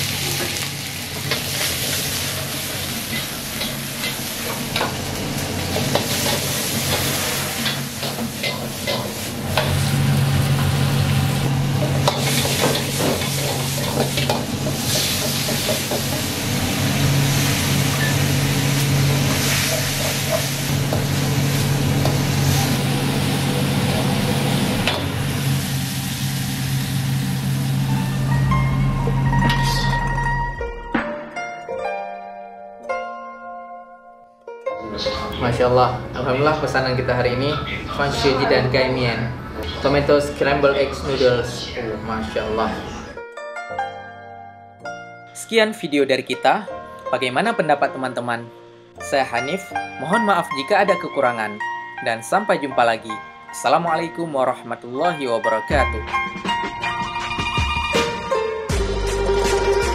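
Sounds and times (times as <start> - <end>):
vegetables sizzling in a wok: 0.0 - 28.4
metal ladle scraping wok: 11.8 - 16.4, 17.3 - 20.7.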